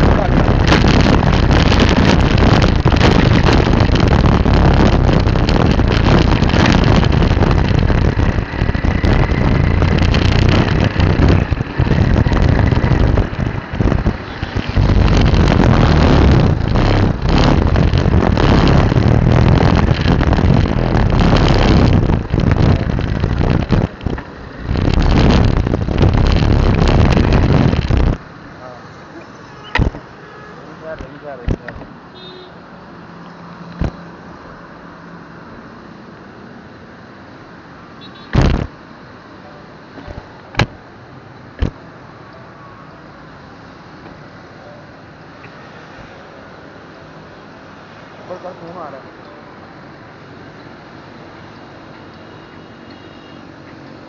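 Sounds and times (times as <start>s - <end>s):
wind buffeting microphone: 0.0s - 28.3s, 38.4s - 38.8s
engine and road noise: 0.0s - 54.0s.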